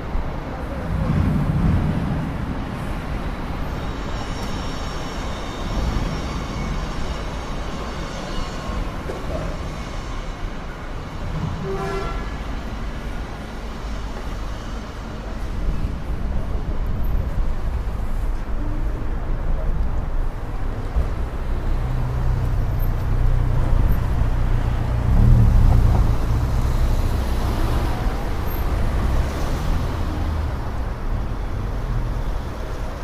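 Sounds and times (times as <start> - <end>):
road traffic rumble: 0.0 - 33.0
car horn toot: 11.6 - 12.4.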